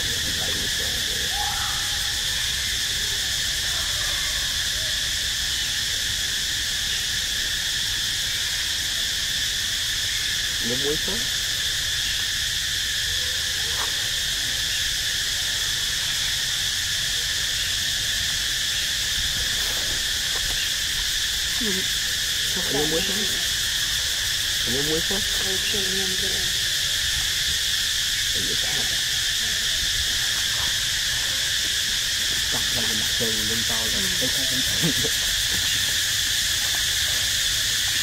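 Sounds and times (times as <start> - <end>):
faint voices: 0.0 - 2.0, 28.3 - 37.5
insects buzzing drone: 0.0 - 38.0.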